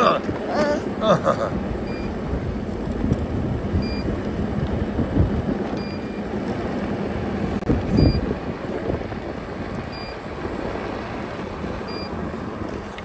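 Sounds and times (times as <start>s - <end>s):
wind buffeting microphone: 0.0s - 13.0s
short high beep: 3.8s - 4.1s, 5.8s - 6.2s, 8.0s - 8.2s, 11.9s - 12.1s.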